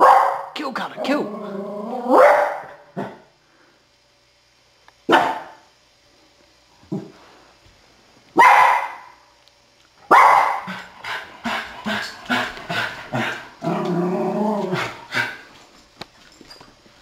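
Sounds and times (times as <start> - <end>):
dog barking: 0.0 - 0.6, 2.1 - 3.1, 5.1 - 5.6, 8.4 - 9.2, 10.1 - 10.8.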